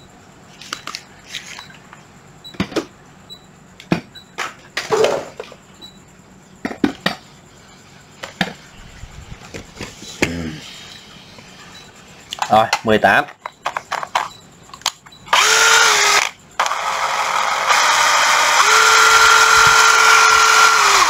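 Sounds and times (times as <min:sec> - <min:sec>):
scraping shuffle: 0:07.7 - 0:10.7
plastic drills clicking and knocking: 0:13.7 - 0:21.0.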